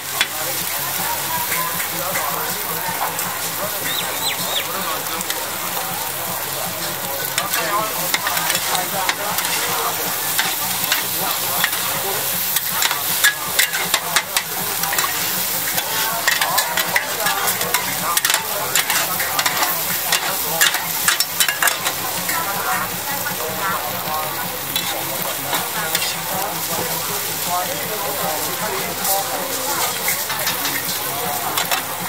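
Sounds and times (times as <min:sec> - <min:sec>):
omelette sizzling on a griddle: 0:00.0 - 0:32.0
metal spatulas scraping a pan: 0:06.8 - 0:22.6, 0:24.7 - 0:27.2, 0:28.1 - 0:32.0.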